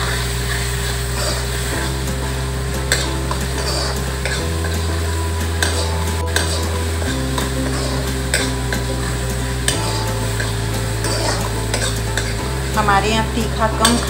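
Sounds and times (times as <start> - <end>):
food sizzling in oil: 0.0 - 14.0
spoon scraping a pan: 2.9 - 12.4.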